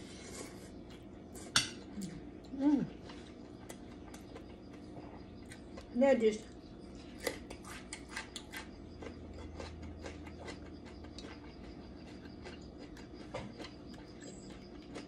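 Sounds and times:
chewing crisp radish: 0.1s - 15.0s.

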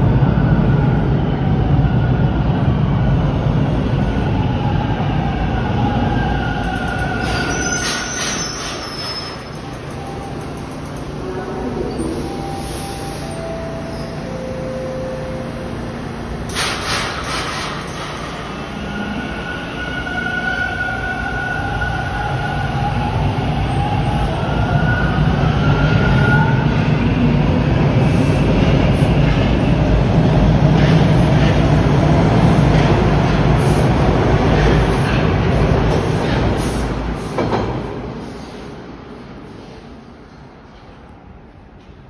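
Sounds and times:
wheels rumbling on rails: 0.0s - 42.0s
subway train motor whine: 9.4s - 34.5s.

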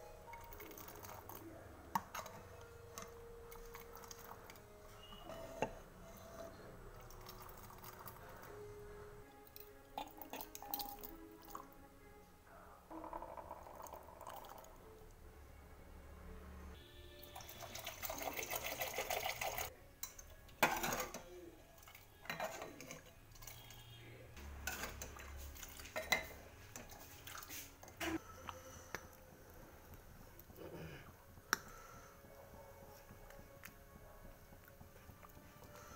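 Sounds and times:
water splashing into a pot: 17.3s - 19.7s
metal ladle clinking a pot: 20.0s - 23.8s.

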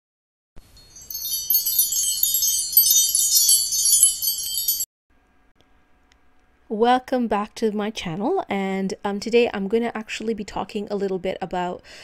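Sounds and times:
wind chimes tinkling: 0.6s - 4.9s.

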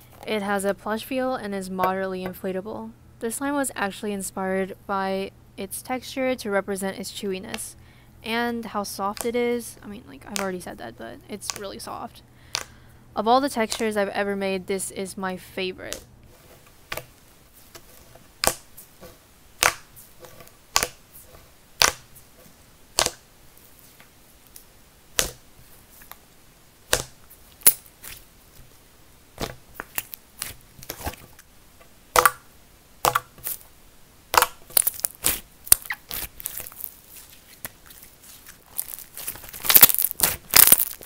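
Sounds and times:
slime squeezed popping: 34.3s - 36.9s, 38.7s - 41.0s.

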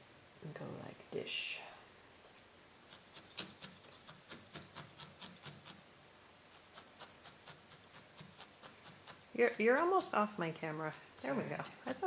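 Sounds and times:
felting needle stabbing wool: 2.9s - 5.8s, 6.5s - 12.0s.

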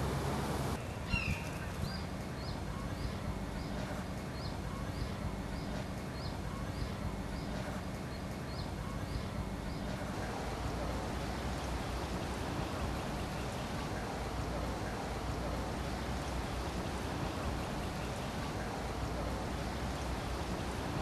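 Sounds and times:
low background rumble: 0.0s - 21.0s
bird chirping: 0.8s - 10.9s.

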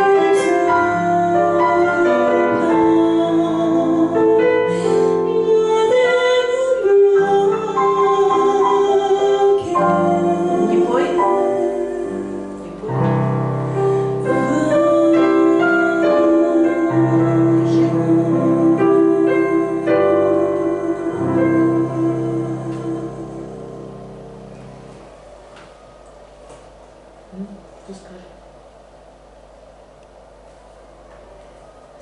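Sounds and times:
woman singing jazz: 0.0s - 24.1s
piano chords: 0.0s - 32.0s.

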